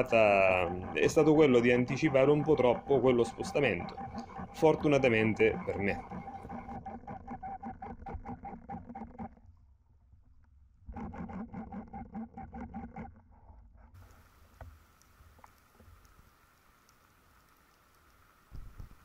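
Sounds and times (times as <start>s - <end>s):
underwater motorboat engine hum: 0.0s - 9.8s
small clicks: 14.0s - 19.0s.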